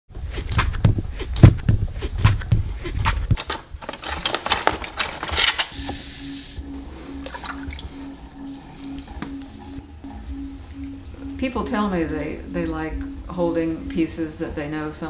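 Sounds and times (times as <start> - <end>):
tools clattering in plastic tub: 3.4 - 5.8
high hiss: 5.7 - 6.6
pulsing hum: 5.8 - 15.0.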